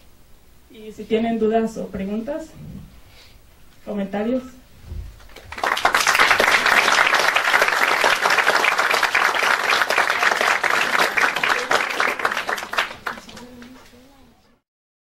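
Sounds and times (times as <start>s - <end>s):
audience applauding: 5.2s - 13.9s.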